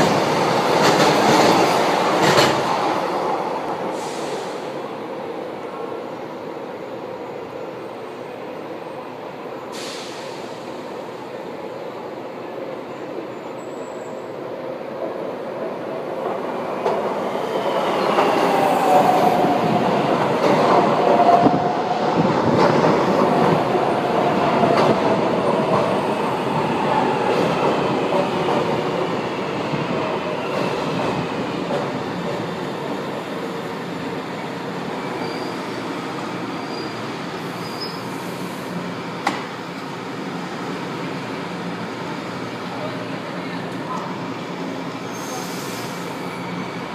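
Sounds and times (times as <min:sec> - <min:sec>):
train wheels rumbling and clacking: 0:00.0 - 0:04.8, 0:15.0 - 0:41.4.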